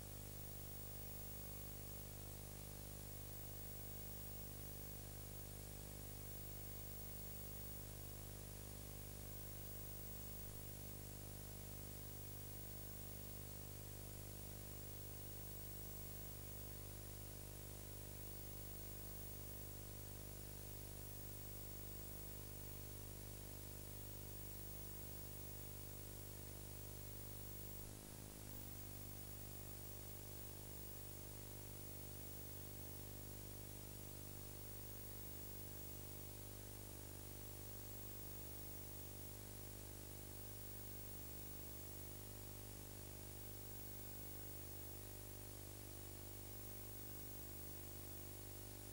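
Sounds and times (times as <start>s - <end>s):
electrical mains hum: 0.0s - 36.2s.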